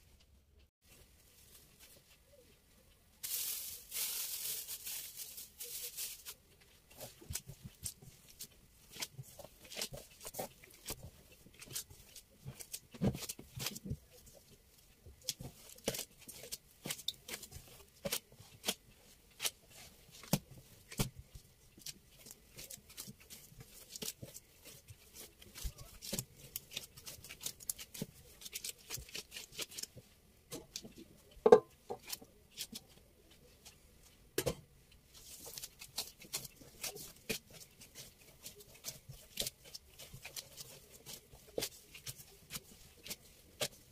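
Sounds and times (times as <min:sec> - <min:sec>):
utensils and food handling: 0:34.4 - 0:43.9.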